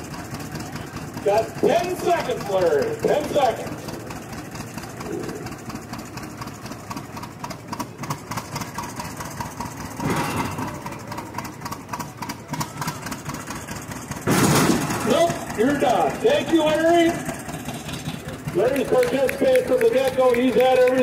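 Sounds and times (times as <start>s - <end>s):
tractor engine idling: 0.0s - 21.0s.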